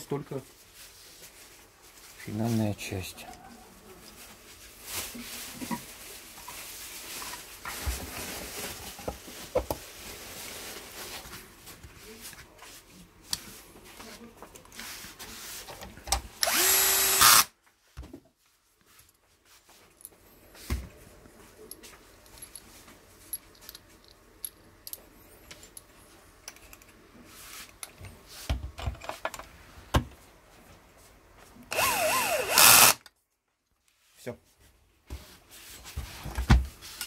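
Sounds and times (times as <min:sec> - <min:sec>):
cordless drill driving screws: 0:16.4 - 0:17.5, 0:31.7 - 0:33.0.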